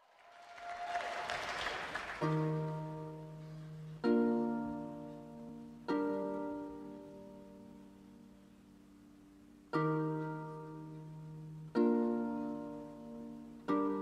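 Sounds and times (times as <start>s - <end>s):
crowd applause: 0.0s - 2.8s
harp chords plucked: 2.2s - 14.0s.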